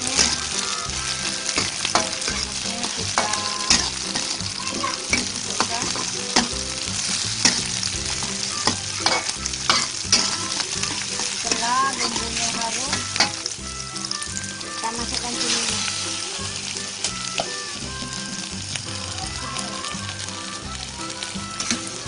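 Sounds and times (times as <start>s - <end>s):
metal spatula scraping pan: 0.0s - 13.6s, 14.4s - 16.5s
oil sizzling in a wok: 0.0s - 22.0s.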